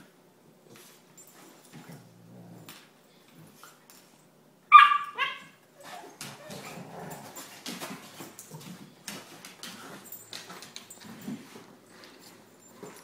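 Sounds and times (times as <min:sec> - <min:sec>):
dog growling: 0:01.9 - 0:02.8, 0:06.4 - 0:07.4
puppy yelping: 0:04.7 - 0:06.8
dogs scuffling: 0:05.8 - 0:13.0.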